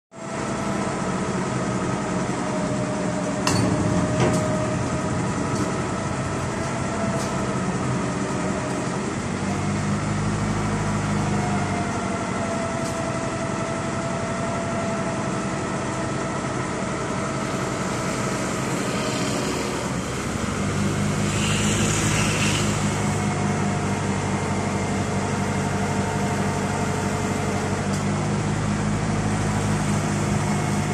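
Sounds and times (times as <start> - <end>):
crane engine whining: 0.2 - 30.9
metal clanks: 3.4 - 4.6.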